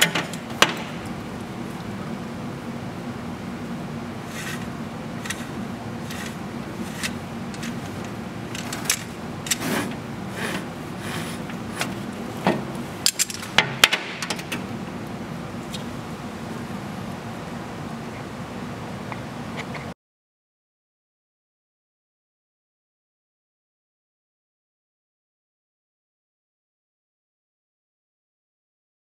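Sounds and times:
steady low hum: 0.0 - 20.0
ratchet buckle clicking and rattling: 8.5 - 9.6, 13.0 - 13.5.

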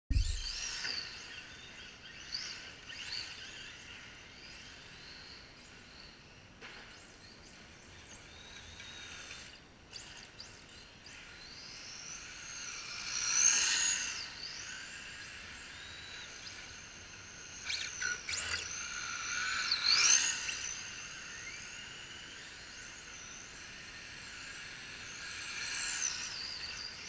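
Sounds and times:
electric motors whining: 8.3 - 27.0.

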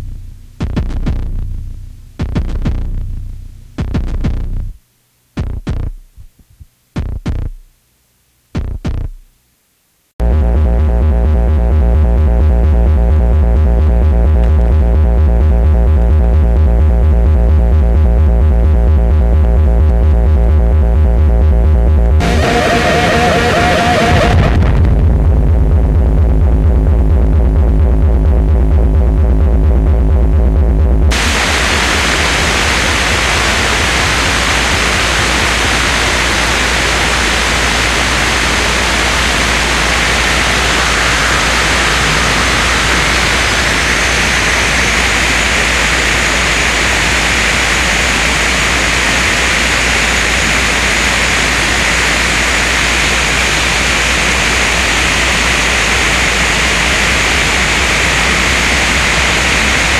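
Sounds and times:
low electronic throb: 0.0 - 4.8, 10.2 - 59.9
high thin whine: 10.2 - 27.5, 31.1 - 59.9
wall of static and hiss: 22.2 - 27.6, 31.1 - 59.9.

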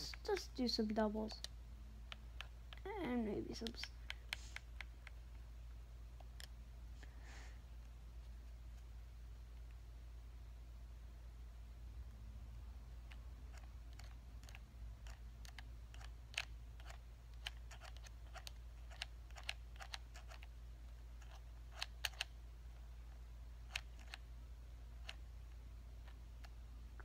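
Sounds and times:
low steady hum: 0.0 - 27.0
controller buttons clicking: 1.3 - 2.9, 13.1 - 20.5, 21.2 - 22.3.

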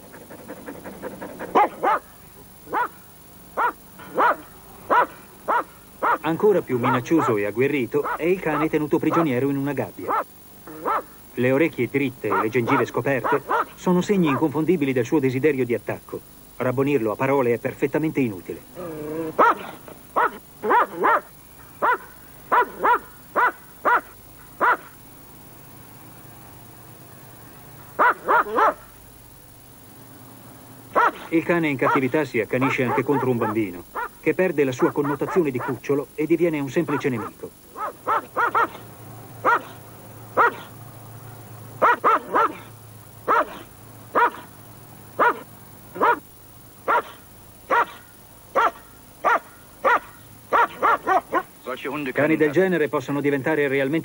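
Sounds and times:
dog barking menacingly: 0.0 - 3.0, 3.6 - 7.4, 8.0 - 9.4, 10.0 - 11.2, 12.2 - 14.5, 19.1 - 25.0, 28.0 - 28.9, 30.9 - 34.2, 34.8 - 35.9, 36.8 - 40.8, 41.8 - 44.5, 45.2 - 51.5.

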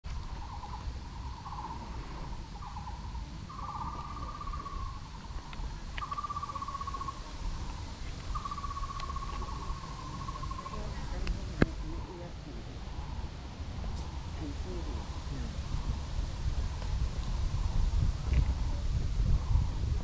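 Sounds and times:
low rumble: 0.0 - 20.0
animal trilling call: 6.0 - 7.2.

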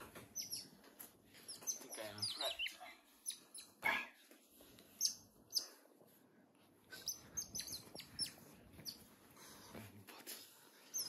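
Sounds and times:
otters chirping: 0.1 - 0.8, 1.4 - 3.8, 4.9 - 5.8, 6.9 - 9.1.

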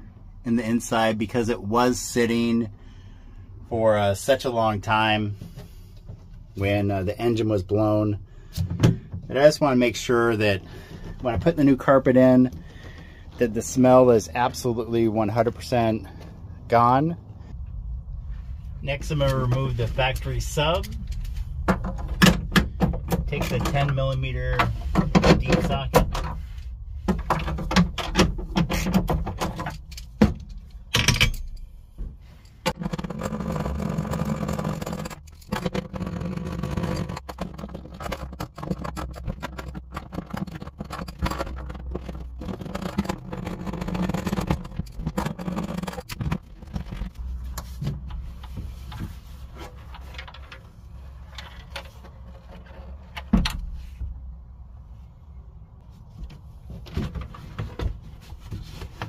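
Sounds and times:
box rattling and scraping: 32.4 - 53.2.

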